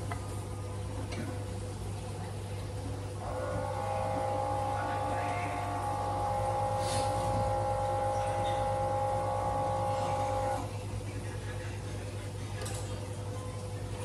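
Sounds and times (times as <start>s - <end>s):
low mains hum: 0.0s - 14.0s
higher electrical whining tones: 3.2s - 10.7s.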